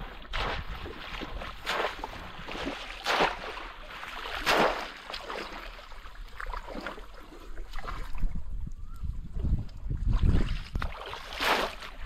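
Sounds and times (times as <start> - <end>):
water sloshing: 0.0 - 12.0
fish trap splashing into water: 0.2 - 5.9, 10.8 - 12.0.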